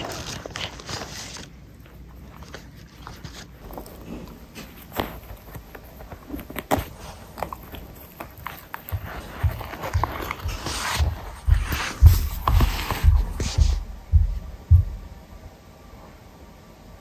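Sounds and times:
dog teeth gnawing a ball: 0.0 - 13.4.

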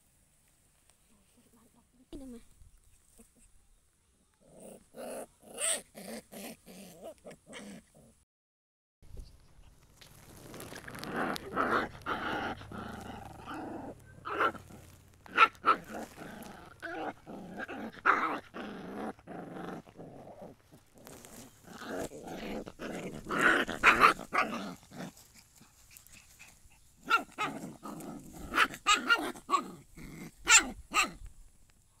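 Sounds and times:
puppies growling and yipping: 4.4 - 8.2, 10.3 - 31.3.

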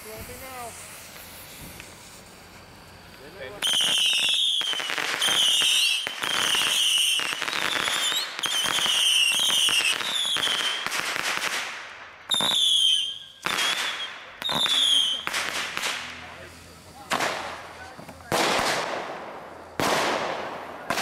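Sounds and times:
whistling firework shots: 0.0 - 16.3, 16.9 - 21.0
firework crackling and hissing: 0.0 - 21.0.

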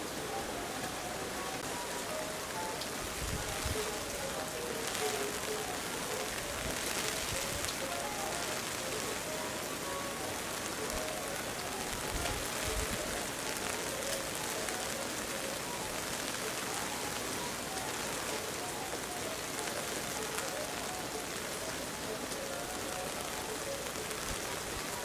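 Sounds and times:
steady rain falling: 0.0 - 25.0.

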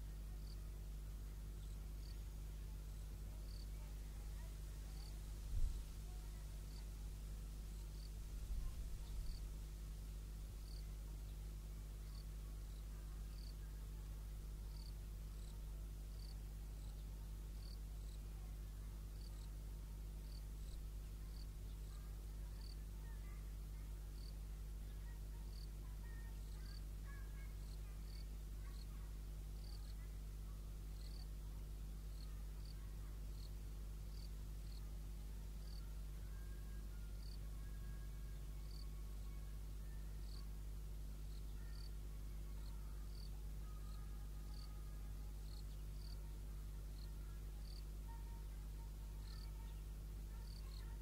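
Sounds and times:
low steady hum: 0.0 - 51.0
insect chirping in high pips: 20.2 - 22.8, 27.6 - 28.8, 31.0 - 31.3, 35.6 - 35.8, 37.2 - 37.4, 38.7 - 38.9, 40.2 - 40.5, 41.2 - 44.8, 45.4 - 46.2, 46.9 - 47.9, 49.2 - 49.7.

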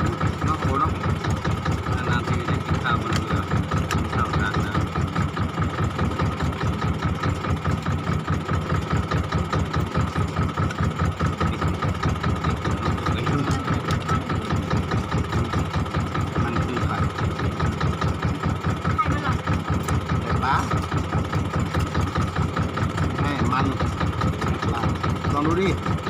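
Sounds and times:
boat engine running: 0.0 - 26.0.

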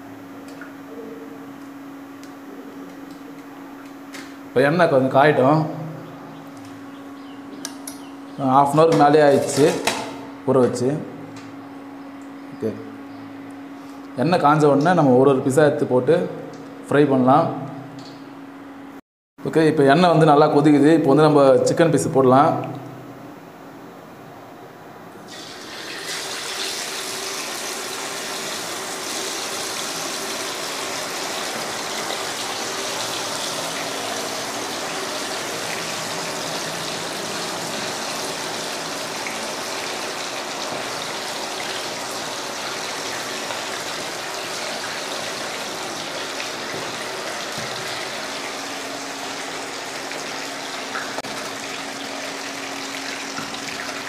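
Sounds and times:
chicken deep-frying in hot oil: 25.3 - 54.0.

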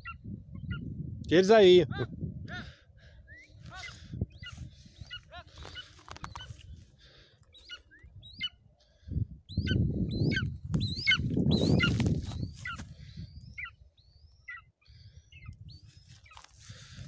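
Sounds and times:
bird of prey yelping: 3.3 - 6.7, 7.5 - 8.7, 9.5 - 16.4.

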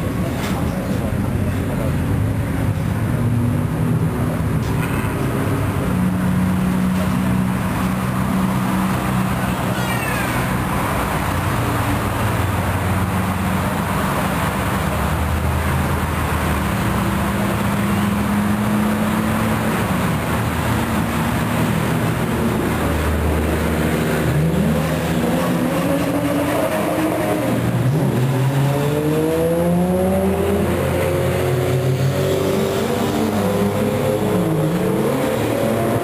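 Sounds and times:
racing car engines: 0.0 - 36.0
car accelerating: 10.5 - 36.0.

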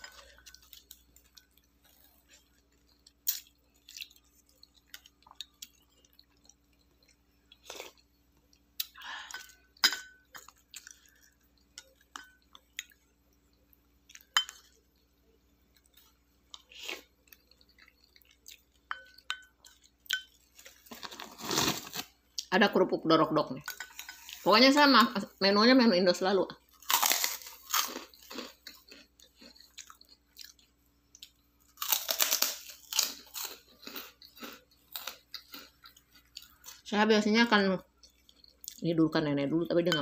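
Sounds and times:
chewing: 0.0 - 9.6, 10.3 - 15.0, 15.7 - 22.1, 26.7 - 36.8
spoon clinking against bowls: 9.2 - 10.6, 11.6 - 12.6, 14.2 - 14.8, 18.7 - 20.4.

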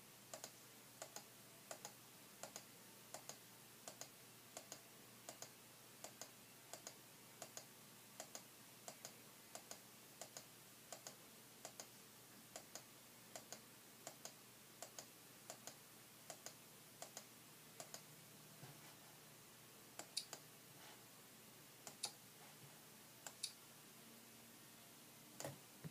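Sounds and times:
computer mouse clicking: 0.3 - 11.9, 12.6 - 18.1, 20.0 - 20.4, 21.8 - 22.2, 23.2 - 23.6.

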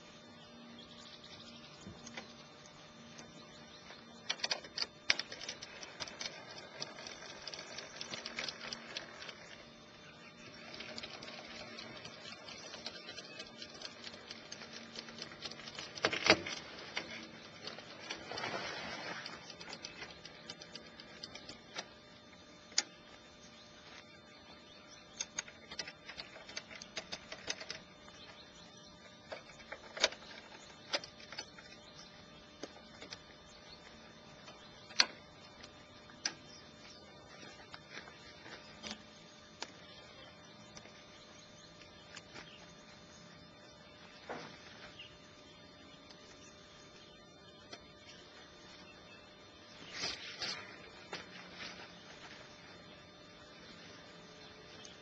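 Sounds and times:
canvas tent rustling: 16.0 - 19.6, 49.8 - 52.9.

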